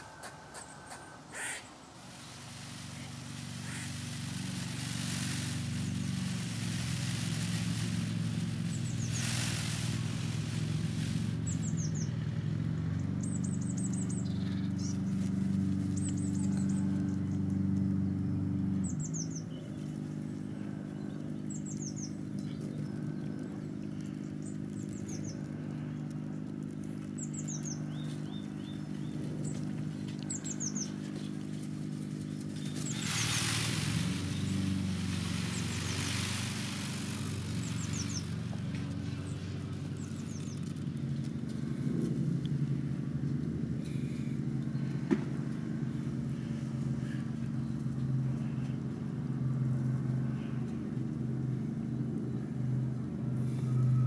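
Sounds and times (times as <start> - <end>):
small songbird chirping: 0.0 - 12.2, 12.9 - 15.3, 15.9 - 40.8
steady low hum: 0.0 - 54.0.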